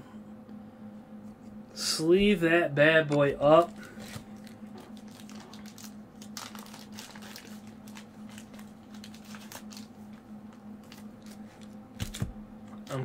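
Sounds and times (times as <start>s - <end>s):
low hum: 0.0s - 13.0s
thin plastic crinkling: 3.6s - 12.3s.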